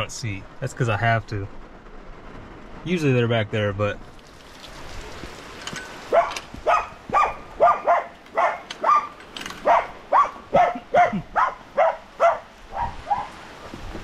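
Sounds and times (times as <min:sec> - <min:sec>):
dog barking: 0:06.1 - 0:13.4.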